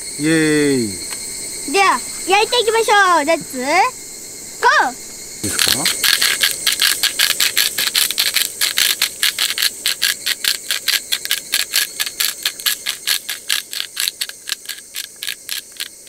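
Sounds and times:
insects droning: 0:00.0 - 0:16.0
salt grinder ratcheting crunches: 0:05.4 - 0:16.0.

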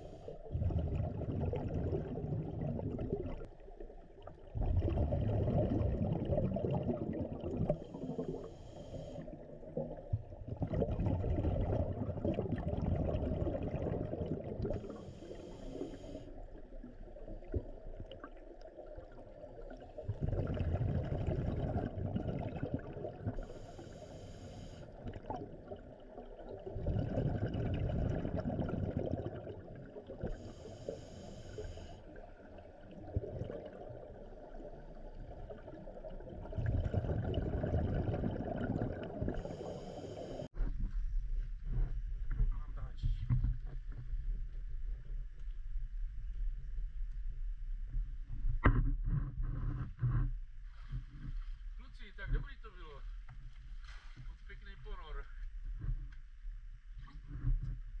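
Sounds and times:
bubbling exhale underwater: 0:00.0 - 0:03.5, 0:04.5 - 0:16.3, 0:17.2 - 0:40.5
hissing regulator inhale: 0:07.7 - 0:09.5, 0:14.8 - 0:16.4, 0:23.4 - 0:25.0, 0:30.2 - 0:32.1, 0:39.3 - 0:40.5.

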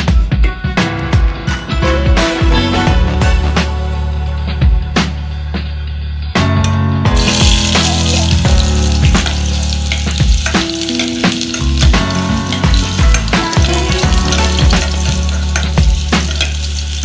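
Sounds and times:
background music: 0:00.0 - 0:17.0
garlic sizzling in hot oil: 0:07.2 - 0:17.0.

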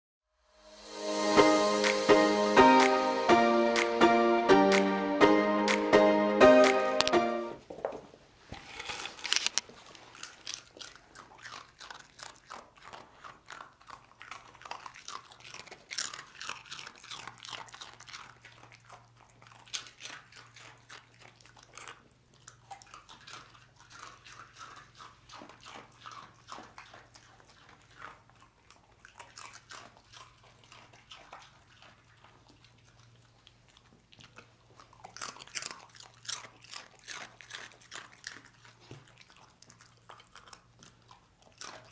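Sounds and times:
dog crunching snacks: 0:08.6 - 0:41.9.

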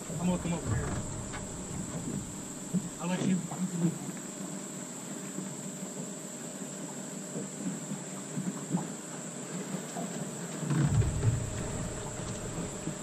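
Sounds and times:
insects droning: 0:00.0 - 0:06.7, 0:10.7 - 0:13.0.

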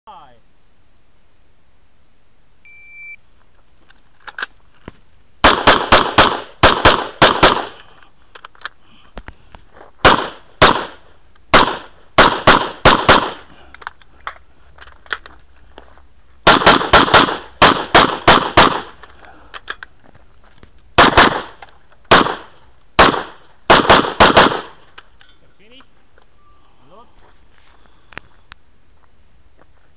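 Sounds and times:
shot timer beep: 0:02.7 - 0:03.2
semi-automatic rifle firing: 0:05.4 - 0:07.8, 0:10.0 - 0:13.5, 0:16.4 - 0:19.0, 0:21.0 - 0:24.8.

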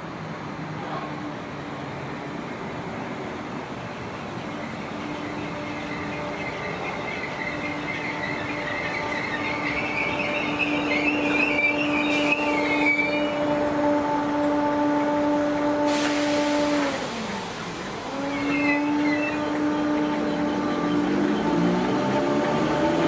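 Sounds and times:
rush of passing train: 0:00.0 - 0:23.0
electric train motor hum: 0:02.0 - 0:23.0
wavering high squeal: 0:04.6 - 0:13.7, 0:16.3 - 0:21.8.

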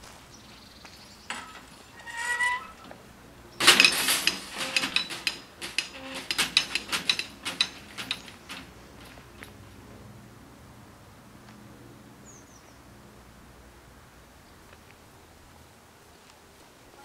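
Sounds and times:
rattling of lattice skirts: 0:00.4 - 0:09.8
barrier squeal: 0:01.3 - 0:08.7
metallic clatter of barrier booms: 0:01.3 - 0:09.6.

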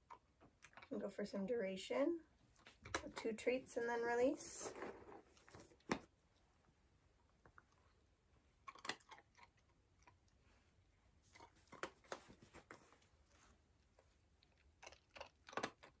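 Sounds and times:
puppy chewing treats: 0:00.0 - 0:01.0, 0:08.6 - 0:10.5, 0:13.3 - 0:16.0.

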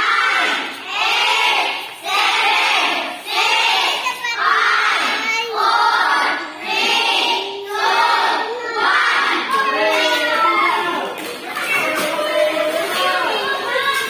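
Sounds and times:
children singing together: 0:00.0 - 0:09.7.

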